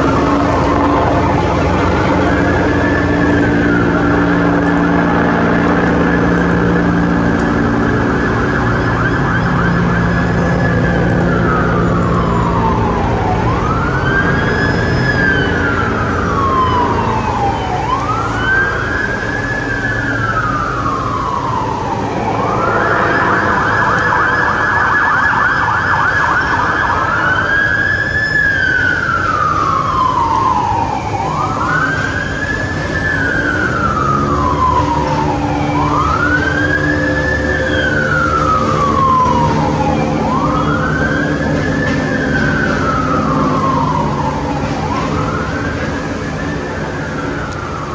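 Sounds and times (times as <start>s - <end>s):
ambulance siren wailing: 0.0s - 47.9s
road traffic: 0.0s - 47.9s.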